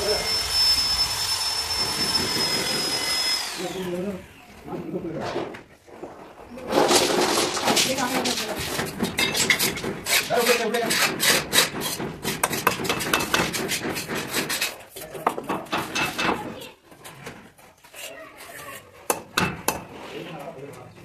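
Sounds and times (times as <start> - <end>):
scraping against wall and frame: 4.6 - 21.0.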